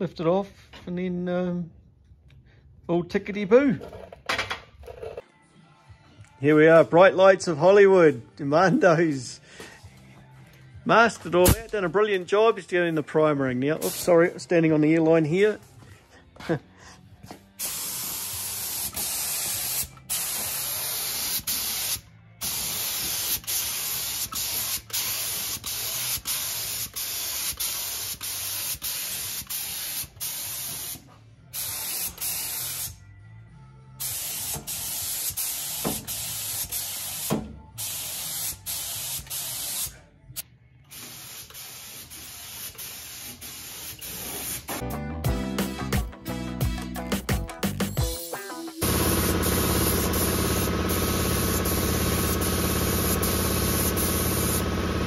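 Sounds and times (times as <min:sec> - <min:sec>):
paint spray gun hissing: 0:13.8 - 0:14.1, 0:17.6 - 0:31.0, 0:31.6 - 0:33.0, 0:34.0 - 0:39.9, 0:40.9 - 0:44.8, 0:48.8 - 0:55.0.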